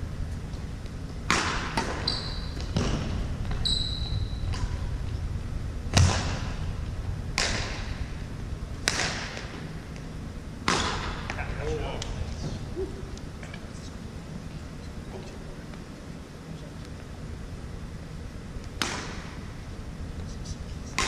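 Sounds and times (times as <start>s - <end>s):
racquets hitting shuttlecock: 1.2s - 2.1s, 7.3s - 8.1s, 8.8s - 9.7s, 10.6s - 11.4s, 18.6s - 19.4s
sneakers squeaking on hardwood: 1.9s - 4.7s.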